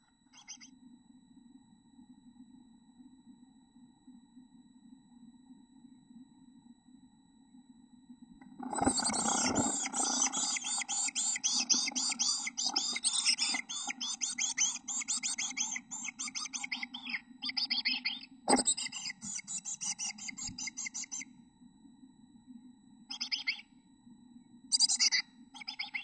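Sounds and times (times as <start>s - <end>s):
nestlings begging calls: 8.7s - 21.2s, 24.7s - 26.0s.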